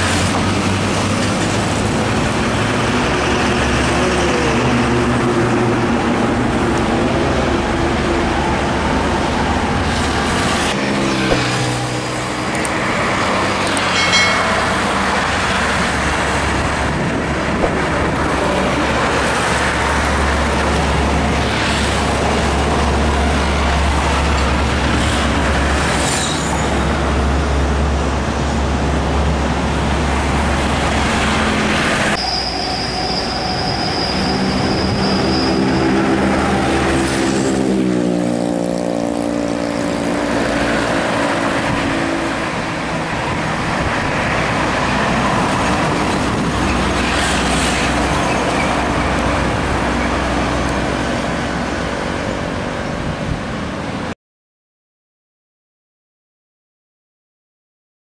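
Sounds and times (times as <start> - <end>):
trucks and motorcycles passing: 0.0 - 32.2, 34.1 - 54.1
high steady squeal: 32.1 - 36.6.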